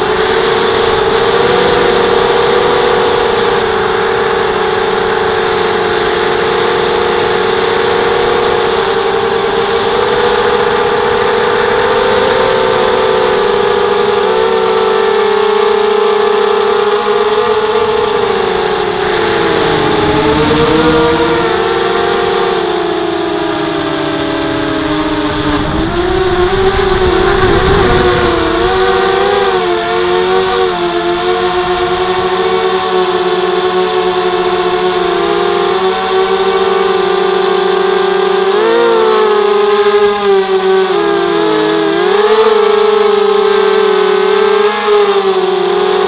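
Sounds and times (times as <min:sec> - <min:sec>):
drone motors whining: 0:00.0 - 0:46.0
rush of air noise: 0:24.5 - 0:29.7.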